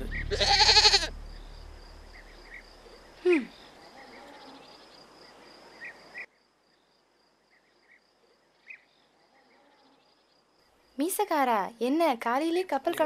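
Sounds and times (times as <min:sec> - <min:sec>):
animal call falling in pitch: 0:00.0 - 0:01.2
crickets chirring: 0:00.0 - 0:11.4.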